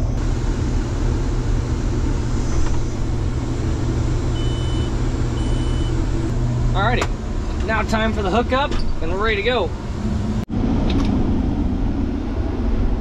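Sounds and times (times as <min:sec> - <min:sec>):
deep steady hum: 0:00.0 - 0:13.0
harvester engine running: 0:00.0 - 0:13.0
short high-pitched electronic beeps: 0:04.4 - 0:06.0.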